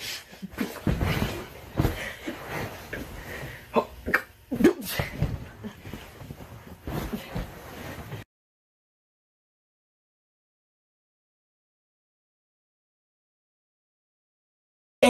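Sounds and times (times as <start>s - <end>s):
people wrestling on carpet: 0.0s - 3.7s, 4.5s - 8.2s.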